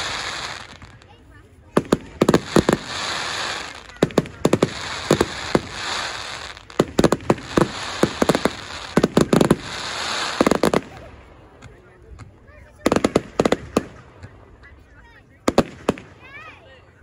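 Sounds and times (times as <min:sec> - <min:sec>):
fireworks hissing crackle: 0:00.0 - 0:11.5
fireworks bursting with sharp bangs: 0:00.0 - 0:14.8, 0:15.4 - 0:16.5.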